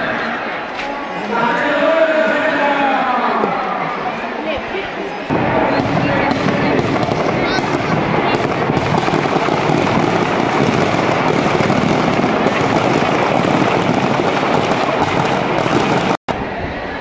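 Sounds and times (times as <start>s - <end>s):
firecrackers crackling: 5.3s - 16.2s.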